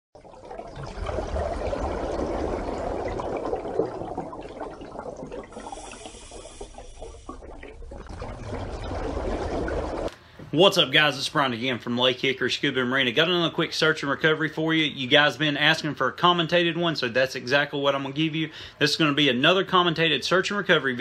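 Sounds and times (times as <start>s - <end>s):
underwater bubbling: 0.2s - 10.1s.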